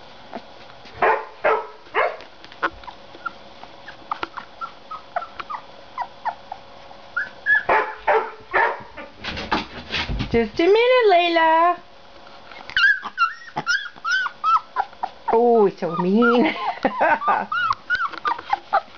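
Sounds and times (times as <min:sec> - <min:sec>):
puppy yelps: 0:01.0 - 0:06.6, 0:07.2 - 0:08.8, 0:12.7 - 0:18.9
puppies whimpering and yipping: 0:02.5 - 0:08.0, 0:12.5 - 0:18.9.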